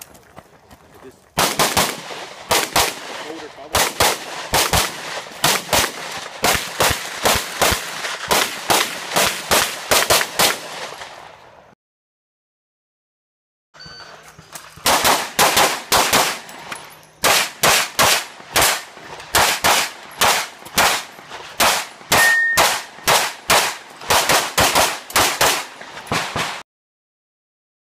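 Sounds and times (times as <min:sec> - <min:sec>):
rapid pistol shots: 0:01.4 - 0:11.2, 0:14.8 - 0:26.6.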